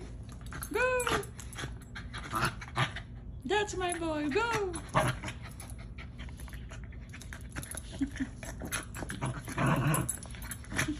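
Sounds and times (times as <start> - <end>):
dog growling: 0.6 - 3.0, 8.4 - 10.9.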